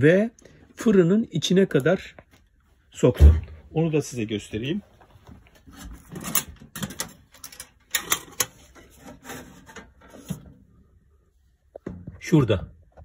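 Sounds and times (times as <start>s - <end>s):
phone handling rubbing and scraping: 5.3s - 10.7s.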